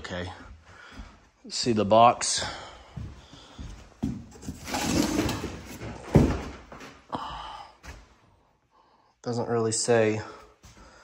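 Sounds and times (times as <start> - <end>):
cardboard box scraping and rustling: 4.3 - 6.3
cardboard box thump: 4.4 - 6.6.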